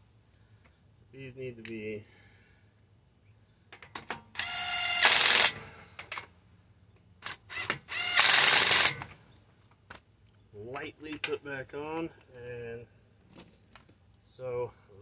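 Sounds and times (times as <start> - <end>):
impact wrench whining and hammering: 3.8 - 6.3, 7.2 - 9.2.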